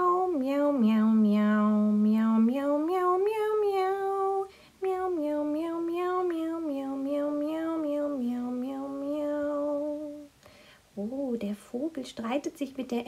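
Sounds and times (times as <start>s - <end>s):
person humming wordless tune: 0.0s - 10.4s.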